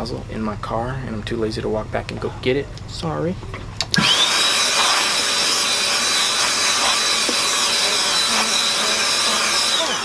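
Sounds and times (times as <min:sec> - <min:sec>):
dust blower motor whine: 0:04.0 - 0:10.0.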